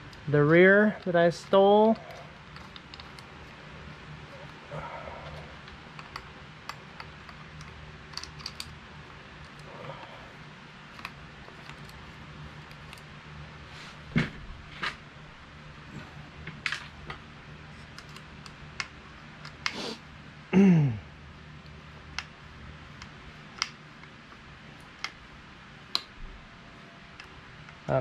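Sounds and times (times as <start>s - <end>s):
low steady hum: 0.0s - 28.0s
small metal clicks and taps: 1.0s - 3.3s, 5.6s - 8.8s.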